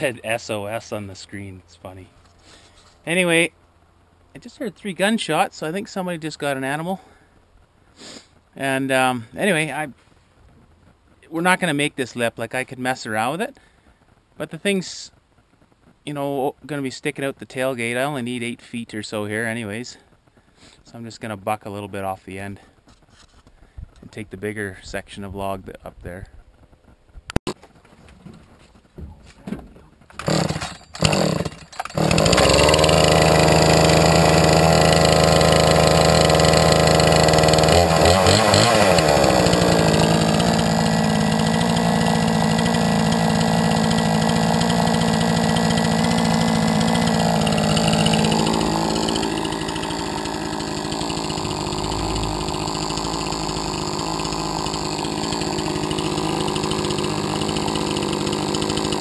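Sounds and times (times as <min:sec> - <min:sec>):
chainsaw engine running: 0:00.0 - 0:00.5, 0:30.2 - 0:59.0
chainsaw starter cord pulls: 0:30.1 - 0:59.0.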